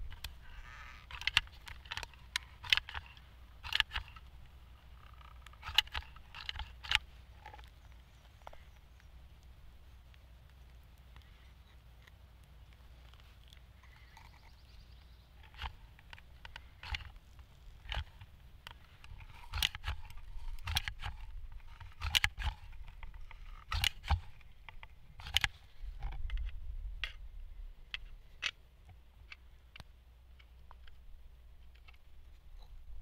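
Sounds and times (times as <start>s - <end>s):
adhesive gun being handled: 0.0s - 9.5s, 15.4s - 27.3s, 27.9s - 32.4s
hand tools clicking and tapping: 1.0s - 4.3s, 17.8s - 25.5s.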